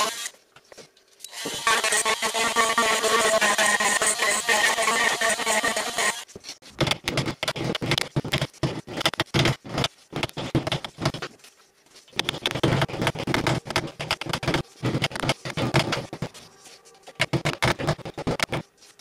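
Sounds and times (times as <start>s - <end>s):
file rasping on wood: 1.5s - 6.2s.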